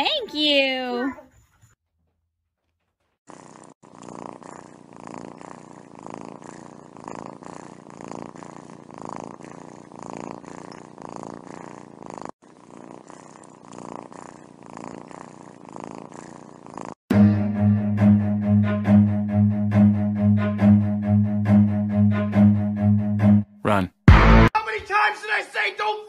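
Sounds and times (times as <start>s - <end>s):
cat purring: 3.1s - 17.1s.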